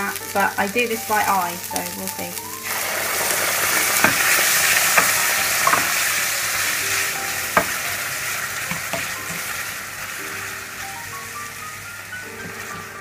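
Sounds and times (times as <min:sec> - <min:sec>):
cream sizzling in a frying pan: 0:00.0 - 0:13.0
spoon knocking against pan: 0:04.0 - 0:06.0, 0:08.7 - 0:09.5.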